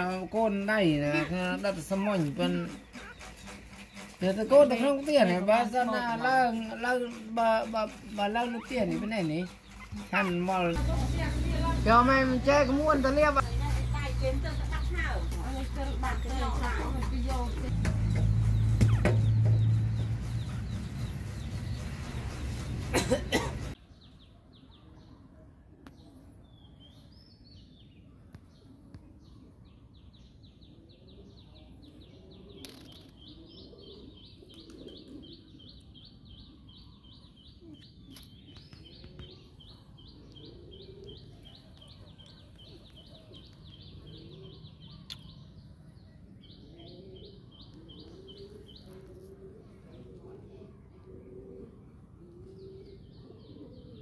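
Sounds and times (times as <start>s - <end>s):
bird chirping rapidly: 0.0s - 23.7s.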